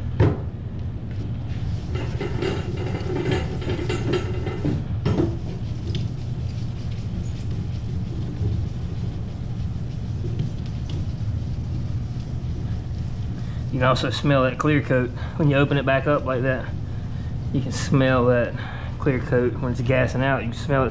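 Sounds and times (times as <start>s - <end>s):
steady low hum: 0.0s - 20.9s
work table rattling: 1.9s - 6.0s
wet sandpaper rubbing: 5.4s - 18.5s.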